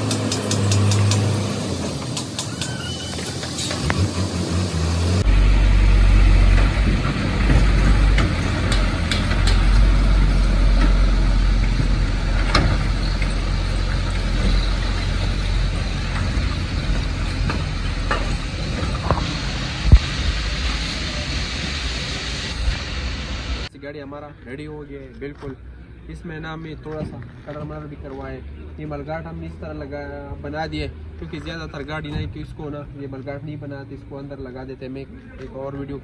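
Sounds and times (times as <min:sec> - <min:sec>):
truck diesel engine rumbling: 0:00.0 - 0:23.7.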